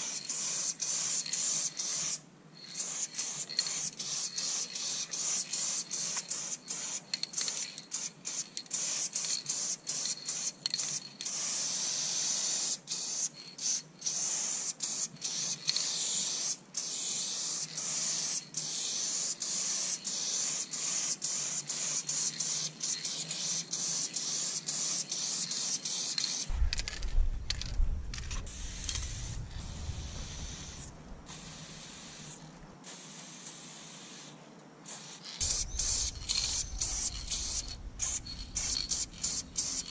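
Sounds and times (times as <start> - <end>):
spray paint can hissing: 0.0 - 39.9
low rumble: 26.5 - 31.3, 35.4 - 39.6.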